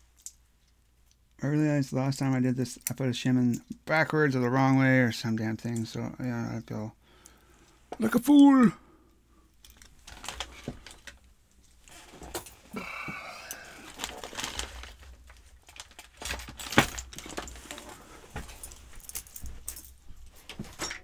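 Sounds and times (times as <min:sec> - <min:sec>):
keys jingling: 0:15.6 - 0:21.0.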